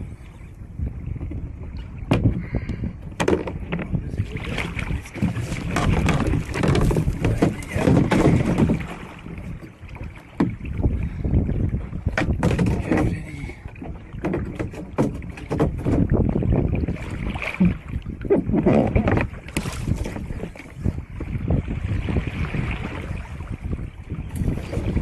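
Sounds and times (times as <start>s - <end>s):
water sloshing against hull: 0.0s - 25.0s
wind on microphone: 0.0s - 25.0s
sharp knocks: 5.2s - 8.9s.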